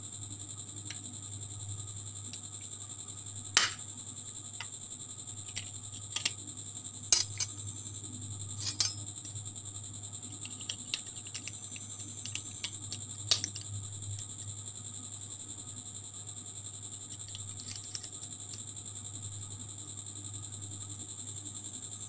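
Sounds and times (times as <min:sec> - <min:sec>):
steady high whine: 0:00.0 - 0:22.0
metal spoon scraping glass jar: 0:07.2 - 0:07.5, 0:08.5 - 0:09.0.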